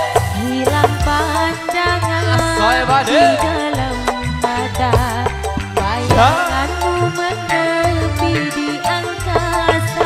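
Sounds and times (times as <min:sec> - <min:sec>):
steady bass: 0:00.0 - 0:08.5
bending sliding melody: 0:05.8 - 0:07.8.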